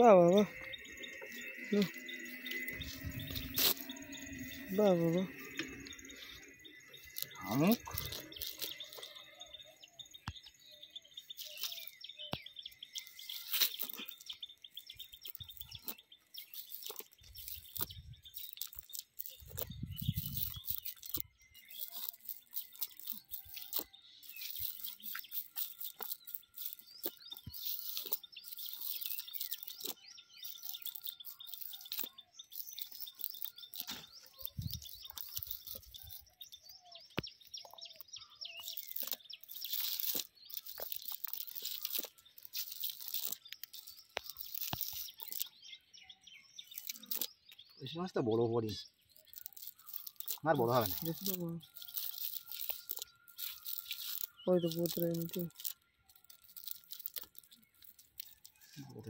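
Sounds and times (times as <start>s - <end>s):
birds chirping: 0.0s - 59.0s
snail shells dropping on ground: 0.6s - 9.5s, 11.3s - 36.5s, 37.1s - 45.5s, 49.1s - 58.6s
net rustling: 7.0s - 9.3s, 13.0s - 36.3s, 38.6s - 45.5s, 49.1s - 58.8s.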